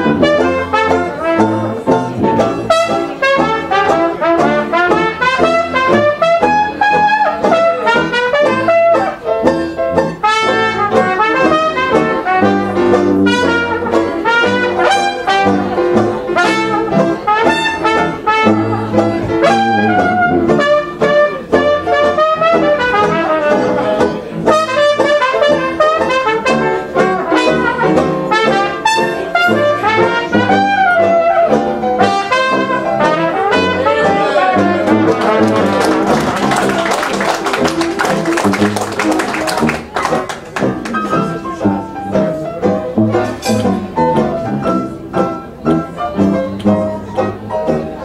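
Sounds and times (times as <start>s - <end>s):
sousaphone bass notes: 0.0s - 3.2s, 18.4s - 22.2s
trumpet melody: 0.0s - 42.2s, 42.9s - 45.0s
banjo chords: 0.0s - 48.0s.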